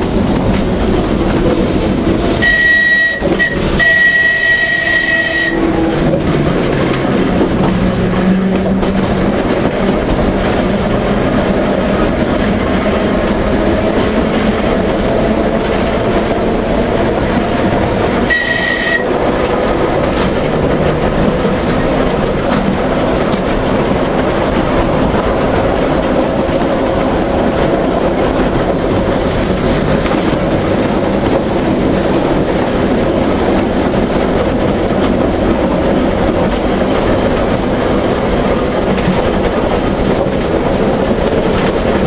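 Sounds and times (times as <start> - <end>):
rail-joint clicks: 0.0 - 42.0
train wheels rumbling on rails: 0.0 - 42.0.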